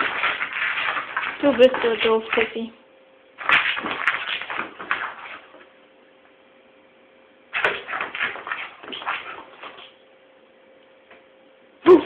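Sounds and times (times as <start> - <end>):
dog scuffling and scrabbling: 0.0 - 2.6, 3.4 - 5.7, 7.6 - 9.9.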